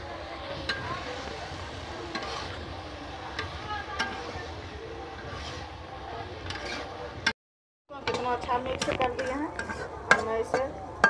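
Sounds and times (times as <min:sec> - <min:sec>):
frying sizzle: 0:00.0 - 0:07.3, 0:07.9 - 0:11.0.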